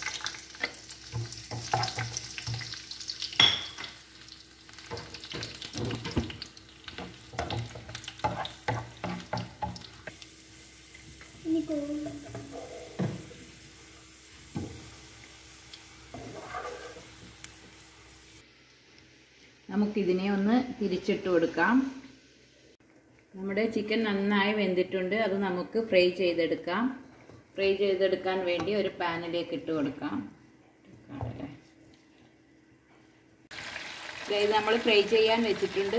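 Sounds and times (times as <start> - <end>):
light sizzle of frying: 0.0 - 25.5, 27.1 - 35.9
spatula scraping and tapping pan: 4.8 - 10.2, 16.1 - 17.6.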